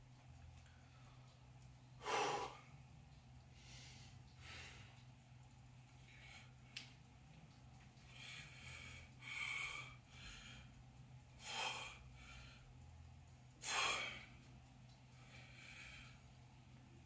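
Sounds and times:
man breathing hard: 2.0 - 2.7, 3.6 - 5.0, 8.0 - 10.8, 11.4 - 12.8, 13.6 - 14.4, 15.1 - 16.4.

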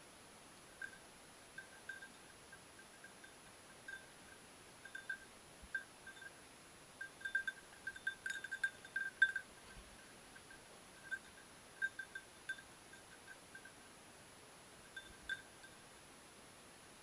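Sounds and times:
small collar bell ringing: 0.8 - 6.4, 7.0 - 13.8, 14.8 - 15.9.

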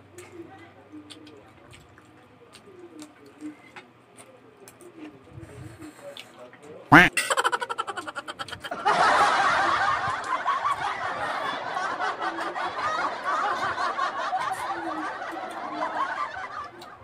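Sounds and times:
crowd laughter: 6.9 - 17.0.

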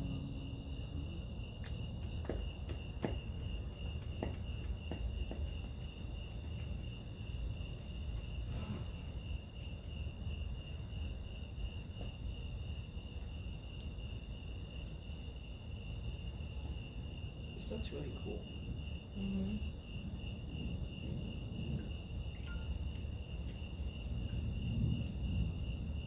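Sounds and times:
low rumbling noise: 0.0 - 2.6, 17.5 - 22.4, 23.0 - 26.0
crickets chirping: 0.0 - 26.0.

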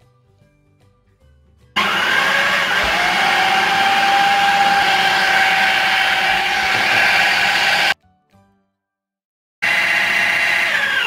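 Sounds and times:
food processor motor whine: 1.8 - 8.0, 9.6 - 11.0.

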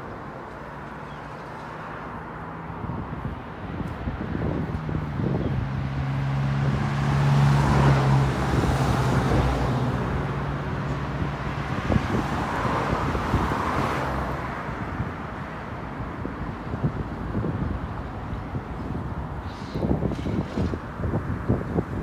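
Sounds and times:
road traffic noise: 0.0 - 22.0.

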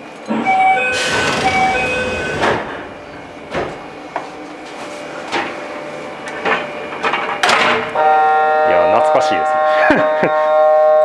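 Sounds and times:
sliding doors air rush: 0.3 - 7.9
two-tone door chime: 0.4 - 3.1
sharp knocks: 0.4 - 5.7.

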